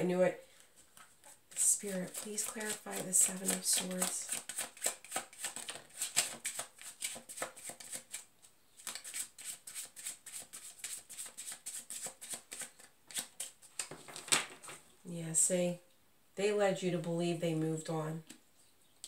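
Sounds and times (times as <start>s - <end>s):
cards being shuffled: 0.6s - 14.8s.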